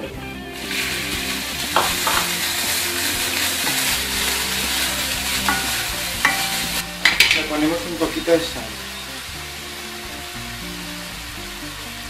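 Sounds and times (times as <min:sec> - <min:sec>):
onion sizzling in oil: 0:00.5 - 0:12.0
wooden spoon stirring: 0:00.6 - 0:08.1.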